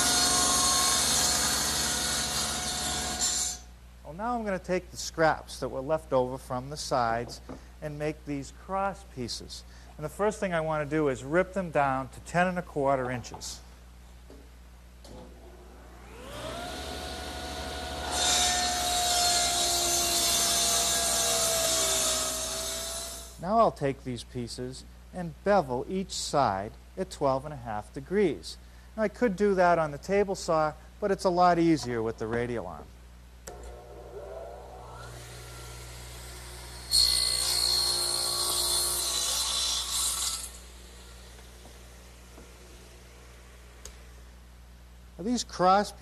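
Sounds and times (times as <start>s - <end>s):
table saw motor whine: 15.7s - 23.3s, 33.5s - 41.8s
saw blade ripping wood: 36.9s - 40.7s.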